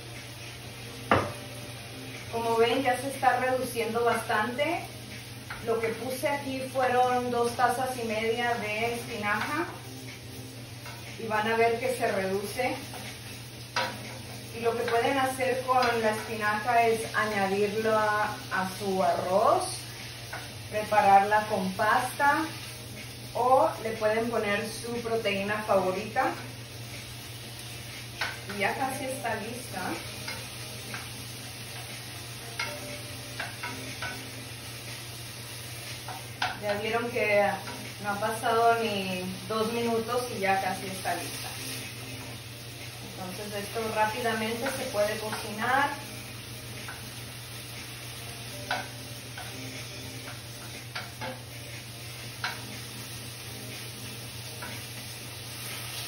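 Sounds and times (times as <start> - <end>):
spinach sizzling in a frying pan: 0.0 - 56.0
utensil clicking against pan: 28.2 - 28.6, 32.6 - 34.4, 50.2 - 51.5, 52.4 - 52.8.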